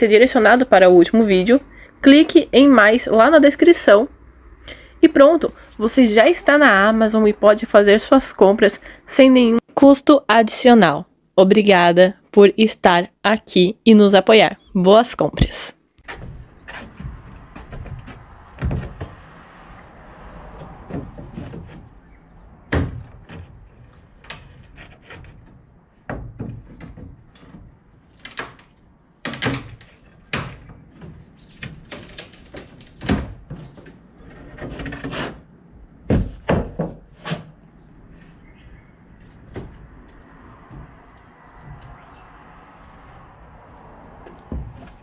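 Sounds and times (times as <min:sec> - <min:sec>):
wooden boards knocking and banging: 0:16.0 - 0:45.0.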